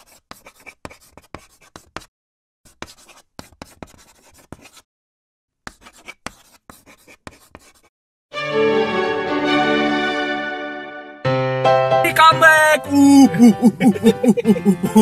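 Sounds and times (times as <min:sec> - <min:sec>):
pen scratching on paper: 0:00.0 - 0:02.1, 0:02.7 - 0:04.9, 0:05.6 - 0:07.9.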